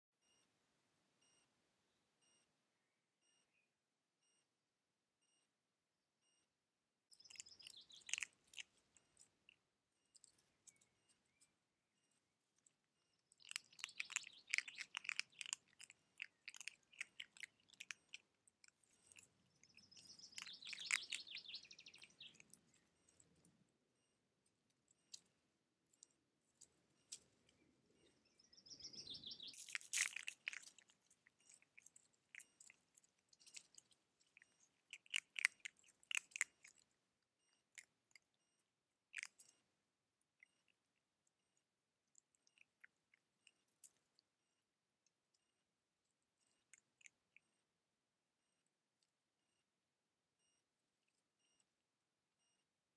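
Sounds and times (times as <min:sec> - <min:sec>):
high chirps: 0:18.9 - 0:22.5.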